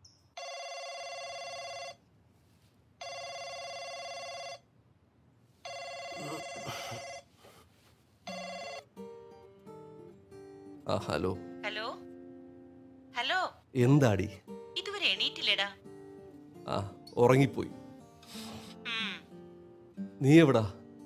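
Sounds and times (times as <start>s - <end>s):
phone ringtone: 0.4s - 2.0s, 3.0s - 4.6s, 5.6s - 7.4s, 8.3s - 9.0s.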